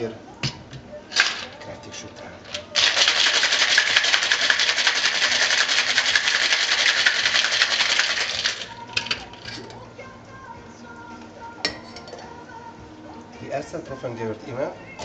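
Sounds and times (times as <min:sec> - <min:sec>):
ice rattling in a cocktail shaker: 0:01.1 - 0:09.8
shaker clinks: 0:02.5 - 0:09.7.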